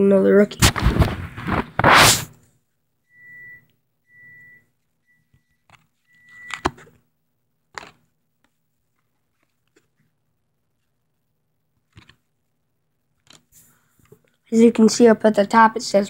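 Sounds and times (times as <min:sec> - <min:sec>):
cards knocking and tapping: 0:07.7 - 0:08.6, 0:11.8 - 0:12.3, 0:13.2 - 0:13.5
trading cards rustling: 0:07.7 - 0:10.1, 0:11.8 - 0:12.3, 0:13.2 - 0:14.4.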